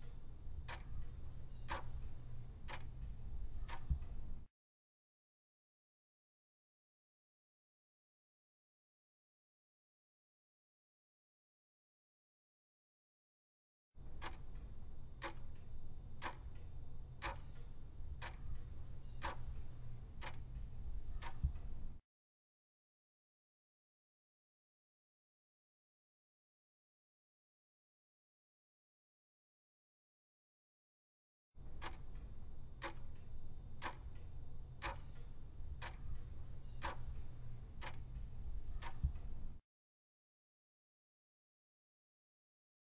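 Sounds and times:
clock ticks: 0.0s - 4.5s, 14.0s - 22.0s, 31.6s - 39.6s
low steady hum: 0.0s - 4.5s, 14.0s - 22.0s, 31.6s - 39.6s.

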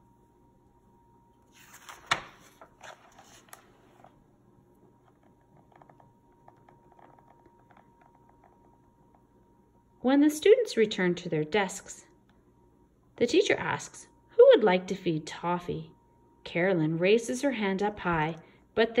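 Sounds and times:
paper page turning: 1.4s - 4.2s.

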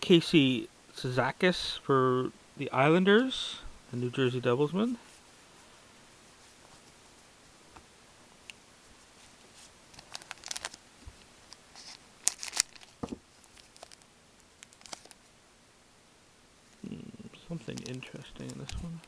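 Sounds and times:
cards rustling and flicking: 9.2s - 10.8s, 11.5s - 14.0s, 14.6s - 15.2s, 17.6s - 19.0s
sharp crinkly snaps: 9.3s - 15.3s, 17.6s - 19.0s.

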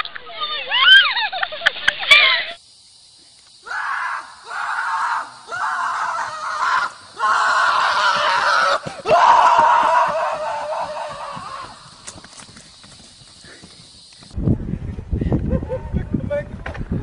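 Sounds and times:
harsh drawn-out screams: 0.4s - 1.2s, 3.6s - 12.2s.

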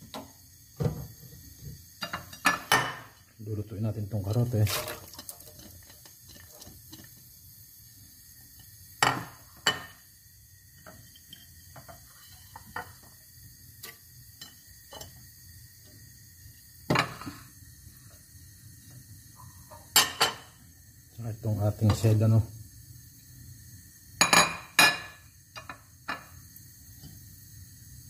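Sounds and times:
dishes and cookware clinking: 2.0s - 3.2s, 9.0s - 10.0s, 14.4s - 15.2s, 16.9s - 17.5s, 19.4s - 20.6s, 24.2s - 26.4s.

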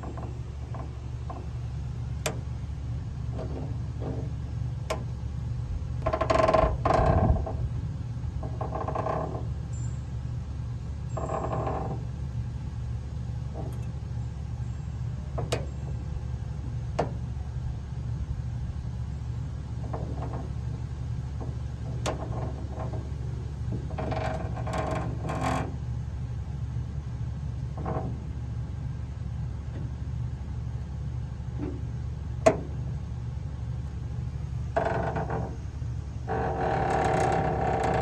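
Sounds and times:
squeaky creaks of spit rod: 6.0s - 7.6s, 11.1s - 12.1s, 36.3s - 38.0s
rotisserie motor hum: 33.7s - 38.0s.

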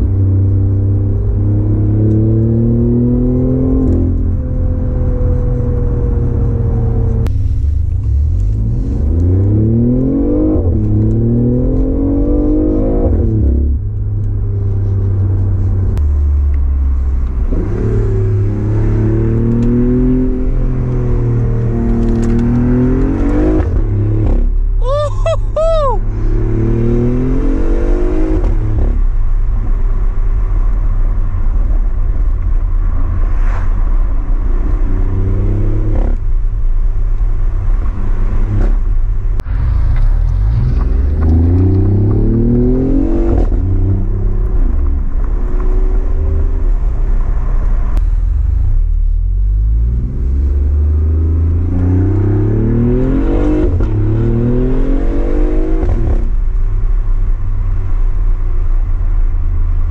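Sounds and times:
car engine accelerating: 0.0s - 59.9s.

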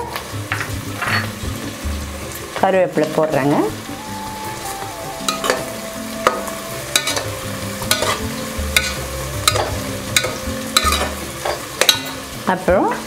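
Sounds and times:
oil sizzling: 0.0s - 13.0s
ladle scraping metal pot: 0.5s - 1.4s, 5.3s - 12.3s.

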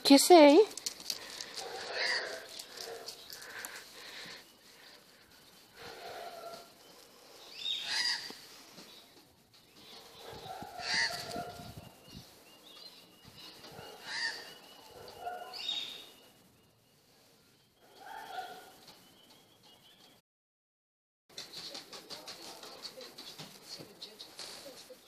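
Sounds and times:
birds calling: 0.8s - 17.0s.

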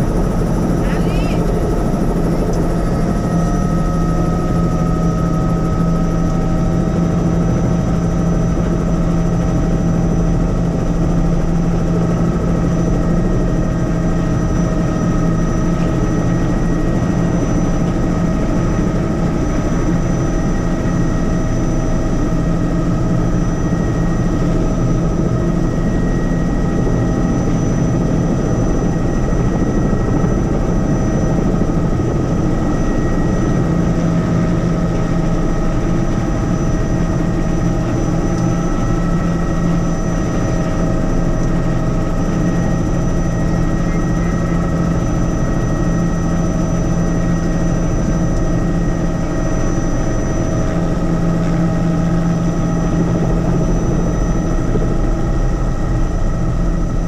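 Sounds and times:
helicopter rotor drone: 0.0s - 57.0s
turbine whine: 0.0s - 57.0s.

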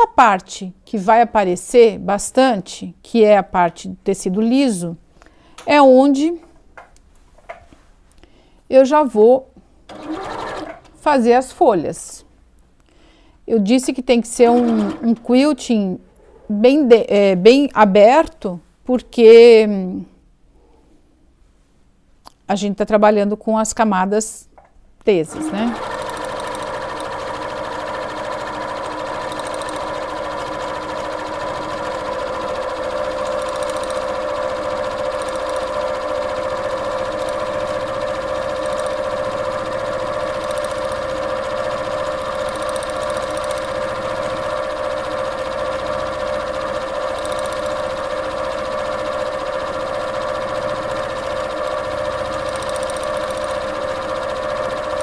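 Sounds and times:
sewing machine running: 9.9s - 10.8s, 14.4s - 15.2s, 25.3s - 55.0s.

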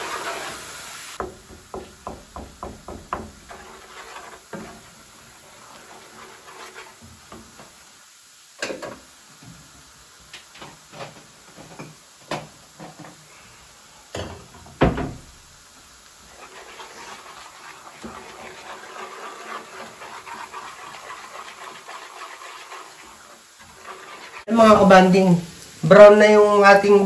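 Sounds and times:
garlic sizzling in butter: 0.0s - 27.0s
wooden spatula knocking on pan: 1.2s - 4.8s.

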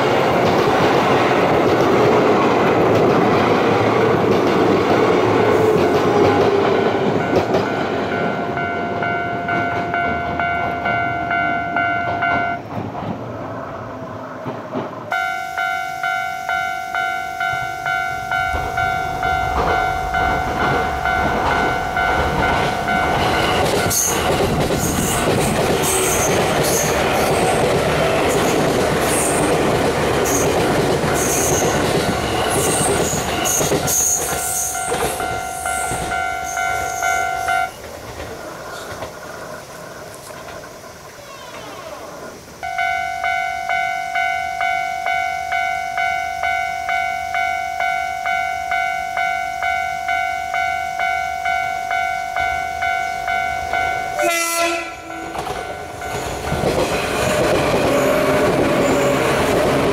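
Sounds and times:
train rumbling and clattering: 0.0s - 59.9s
level crossing warning bell ringing: 4.9s - 12.7s, 15.1s - 28.7s, 30.5s - 37.8s, 42.6s - 59.9s.

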